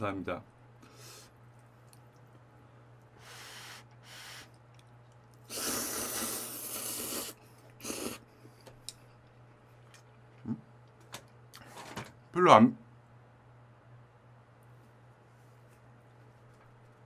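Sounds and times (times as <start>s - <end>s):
low steady hum: 0.0s - 17.0s
wet chewing clicks: 1.5s - 2.5s, 4.5s - 5.5s
noodles slurped loudly: 5.5s - 8.2s.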